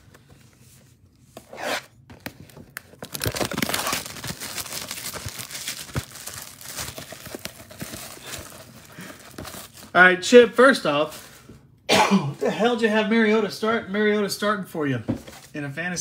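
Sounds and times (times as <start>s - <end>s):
shrink-wrap crinkling and tearing: 1.7s - 10.0s.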